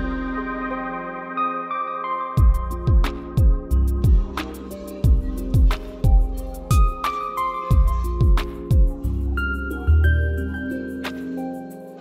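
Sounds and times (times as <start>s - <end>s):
ambient music with deep bass: 0.0s - 12.0s
light ticking beat: 2.4s - 12.0s.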